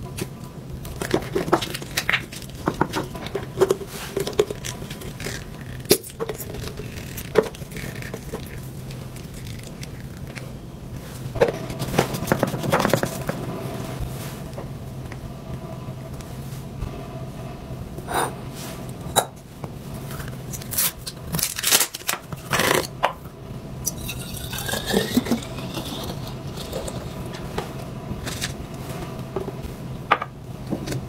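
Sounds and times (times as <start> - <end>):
faint steady hum: 0.0 - 31.0
plastic tube crinkling: 0.8 - 10.5.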